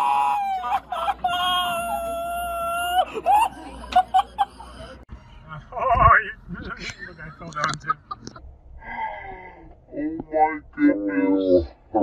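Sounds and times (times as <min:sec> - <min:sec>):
person screaming: 0:00.0 - 0:03.0
person crying out: 0:00.0 - 0:03.5.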